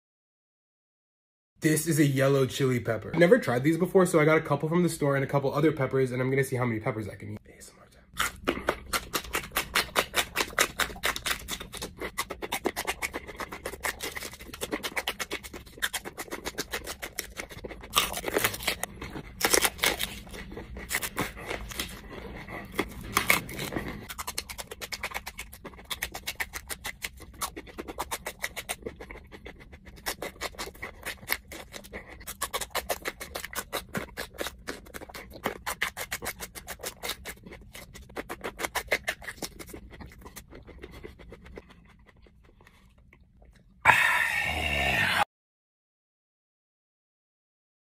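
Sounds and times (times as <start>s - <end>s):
crunching and chewing peppers: 8.1s - 45.2s.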